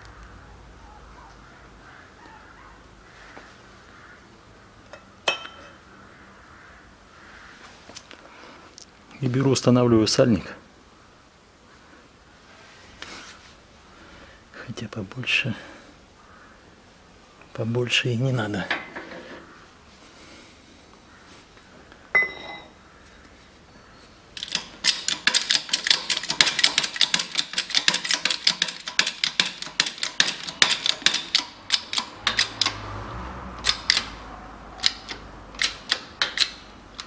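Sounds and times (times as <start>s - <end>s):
ringing metal clank: 22.1s - 22.8s.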